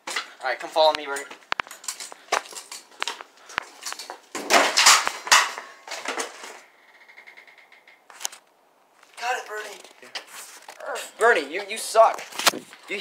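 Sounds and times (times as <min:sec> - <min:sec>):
scooter crashing onto concrete: 0:04.0 - 0:06.6.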